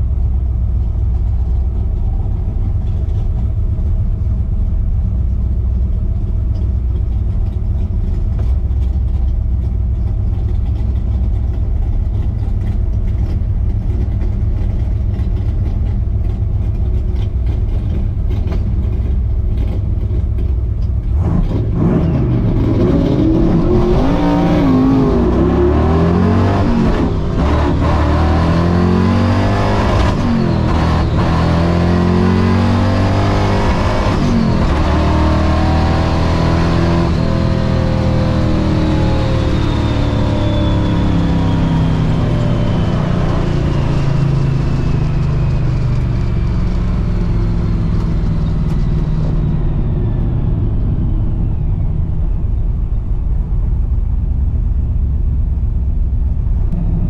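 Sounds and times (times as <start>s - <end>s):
supercharger whine: 0.0s - 57.0s
car engine revving through gears: 17.1s - 51.8s.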